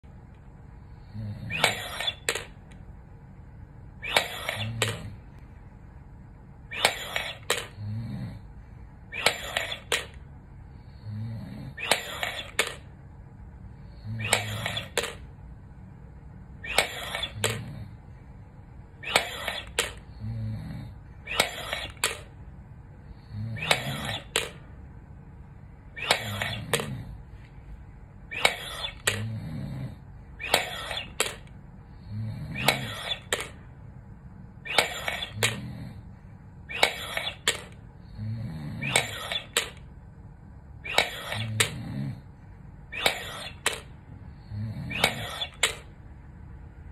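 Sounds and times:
low hum of effort: 0:00.0 - 0:46.9
plastic balls clicking: 0:01.5 - 0:02.8, 0:04.0 - 0:05.1, 0:06.7 - 0:07.8, 0:11.8 - 0:12.9, 0:14.2 - 0:15.3, 0:16.7 - 0:17.8, 0:19.0 - 0:20.1, 0:21.3 - 0:22.4, 0:23.6 - 0:24.7, 0:26.0 - 0:27.0, 0:30.4 - 0:31.6, 0:32.5 - 0:33.6, 0:36.7 - 0:37.8, 0:38.8 - 0:39.9, 0:43.0 - 0:44.0, 0:44.9 - 0:46.0.

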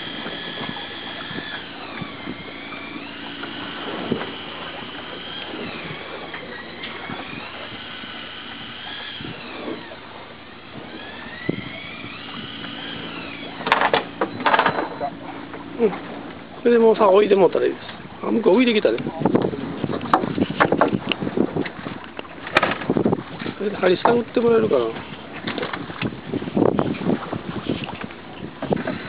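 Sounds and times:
electric fishing reel motor whining: 0:00.0 - 0:17.6
low engine hum: 0:00.0 - 0:18.4
sharp clattering knocks: 0:13.6 - 0:15.0, 0:22.4 - 0:23.0.

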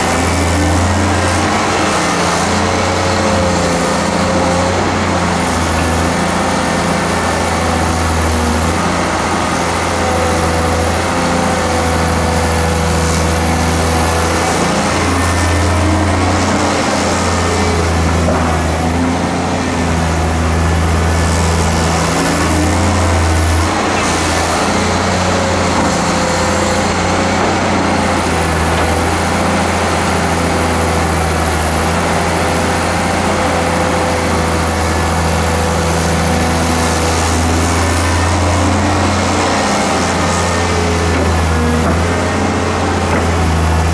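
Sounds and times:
excavator diesel engine running: 0:00.0 - 0:43.9.

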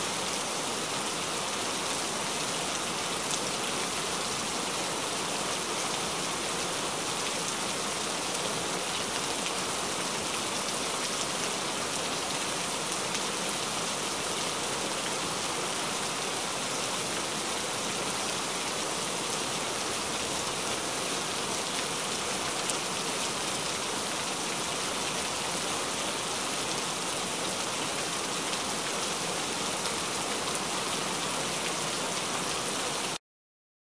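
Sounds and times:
heavy rain falling: 0:00.0 - 0:33.2.

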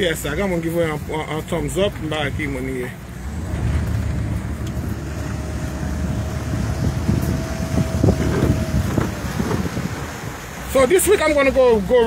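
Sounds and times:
motorboat engine running: 0:01.8 - 0:12.0
hull moving through water: 0:02.9 - 0:11.9
wind buffeting microphone: 0:03.2 - 0:10.7.

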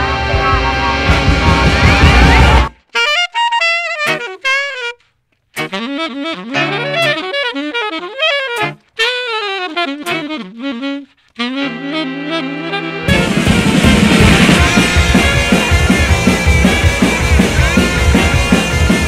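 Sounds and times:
melodic lead with bending notes: 0:00.0 - 0:02.8, 0:11.5 - 0:19.0
band playing: 0:00.0 - 0:19.0.

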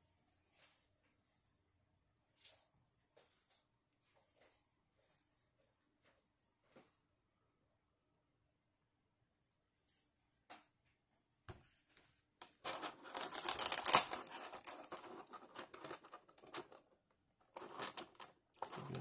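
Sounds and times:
plastic packaging crinkling: 0:12.5 - 0:19.0.

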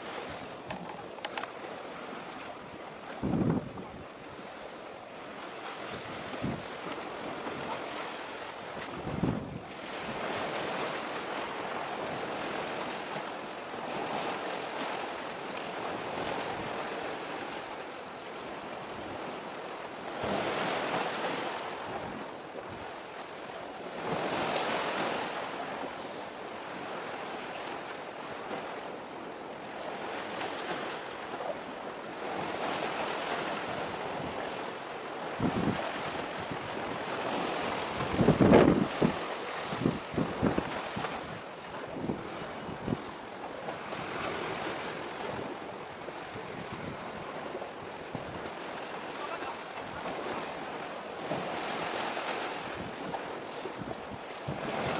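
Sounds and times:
wind buffeting microphone: 0:00.0 - 0:04.6, 0:05.2 - 0:15.0, 0:26.7 - 0:54.9
sea waves washing: 0:00.0 - 0:54.9.

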